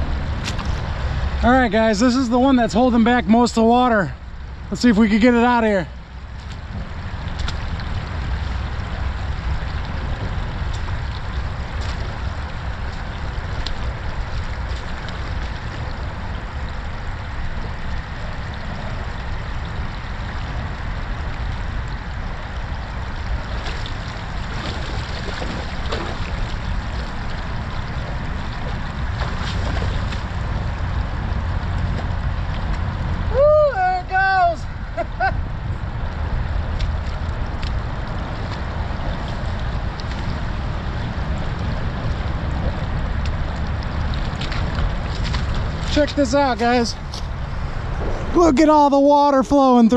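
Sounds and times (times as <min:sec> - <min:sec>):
creek water trickling: 0:00.0 - 0:49.9
steady low rumble: 0:00.0 - 0:49.9
boots wading and splashing: 0:06.2 - 0:19.0, 0:22.4 - 0:33.3, 0:36.2 - 0:48.7.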